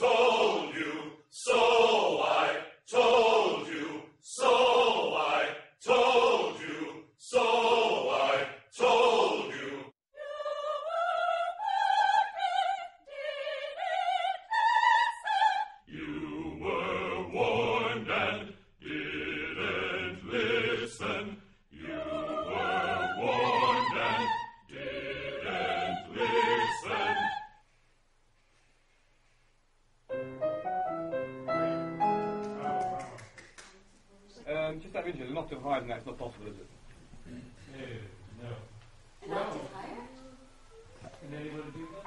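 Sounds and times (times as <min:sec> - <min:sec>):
men's choir singing: 0:00.0 - 0:09.9, 0:15.9 - 0:27.5
women's choir singing: 0:00.0 - 0:27.6.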